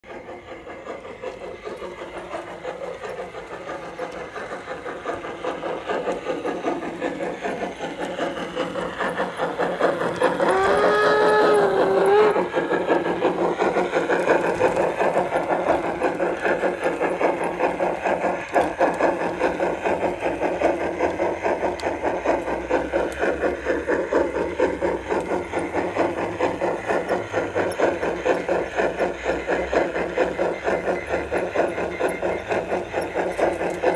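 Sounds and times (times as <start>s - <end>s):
model steam locomotive chuffing: 0.0s - 33.9s
steam whistle: 10.5s - 12.4s.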